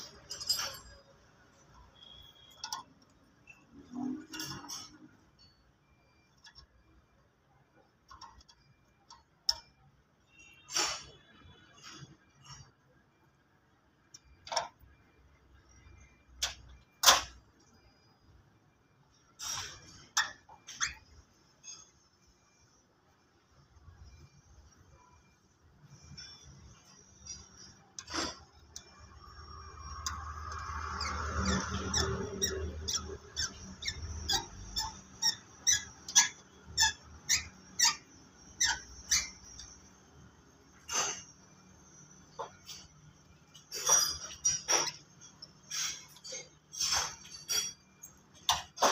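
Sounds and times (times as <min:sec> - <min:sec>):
spanner clinking on metal: 0:00.0 - 0:01.3
screwdriver squeaking on metal: 0:00.0 - 0:05.6, 0:19.1 - 0:22.2, 0:25.8 - 0:48.9.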